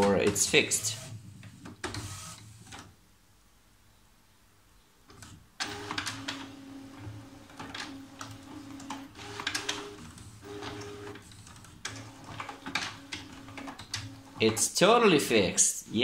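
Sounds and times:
printer motors whirring: 0:00.0 - 0:02.9, 0:05.2 - 0:14.8
printer gears clicking: 0:05.6 - 0:14.7.

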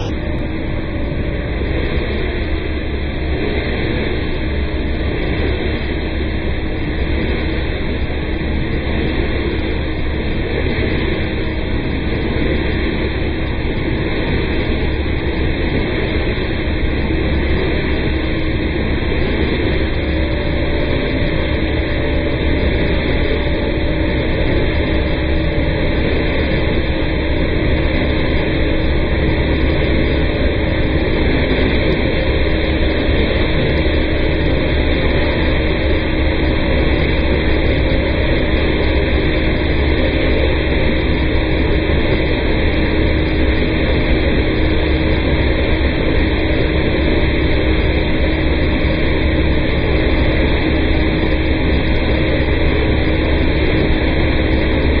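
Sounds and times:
vacuum system humming: 0:00.0 - 0:55.0.

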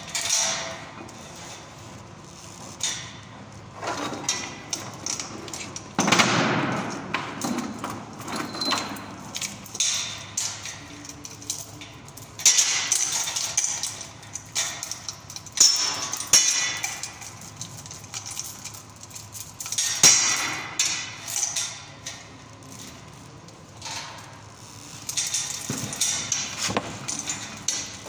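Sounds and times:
chain rattling against steel pipe: 0:23.8 - 0:28.0.

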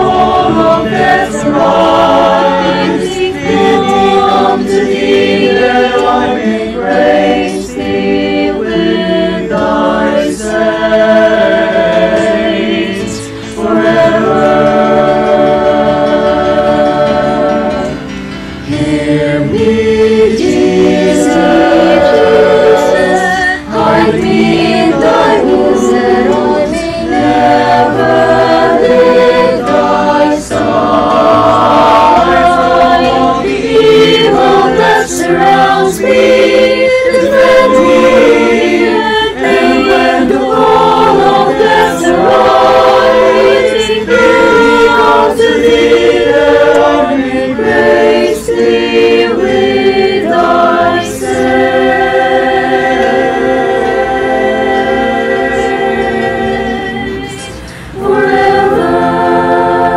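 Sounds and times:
mixed choir singing in harmony: 0:00.0 - 0:59.9.

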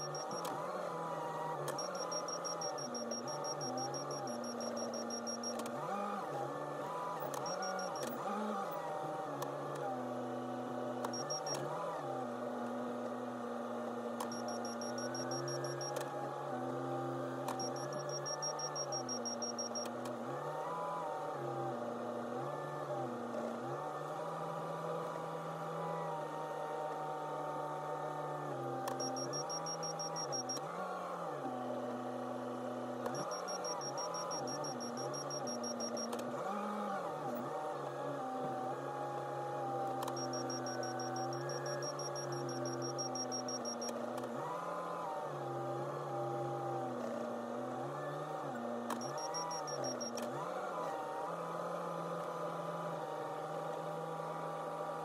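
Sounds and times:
rapid high beeping: 0:00.0 - 0:00.5, 0:01.7 - 0:05.6, 0:07.2 - 0:08.2, 0:11.2 - 0:11.6, 0:14.3 - 0:16.0, 0:17.6 - 0:19.8, 0:29.0 - 0:30.6, 0:33.2 - 0:36.1, 0:40.1 - 0:43.9, 0:49.0 - 0:50.1.

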